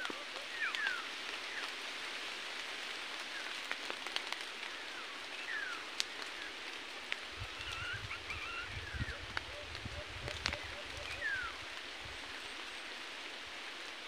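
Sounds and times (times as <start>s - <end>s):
whistled bird calls: 0.1s - 1.6s, 7.6s - 11.6s.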